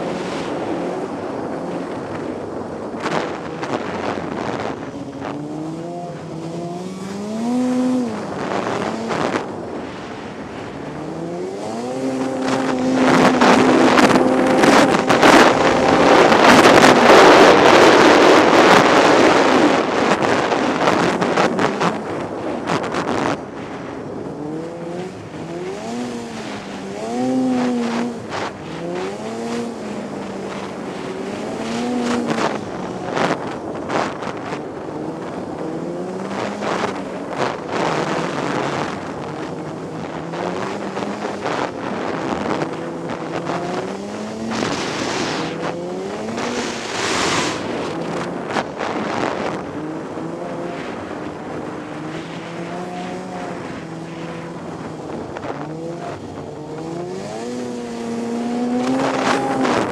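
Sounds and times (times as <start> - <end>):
snowmobile engine revving: 3.0 - 59.9.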